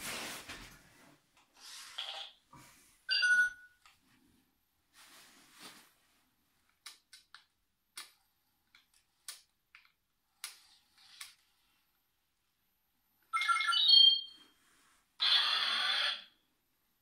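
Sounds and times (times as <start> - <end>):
toy robot electronic beeping: 15.2 - 16.3.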